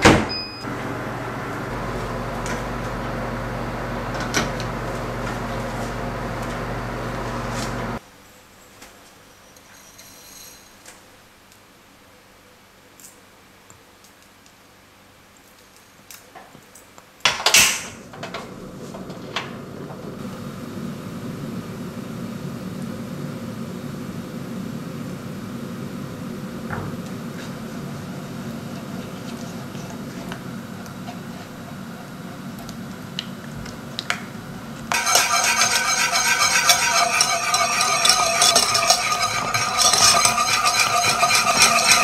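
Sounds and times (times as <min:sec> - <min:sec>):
burner humming: 0:00.0 - 0:08.0, 0:17.8 - 0:42.0
gas burner igniting whoosh: 0:00.6 - 0:08.0, 0:17.7 - 0:42.0.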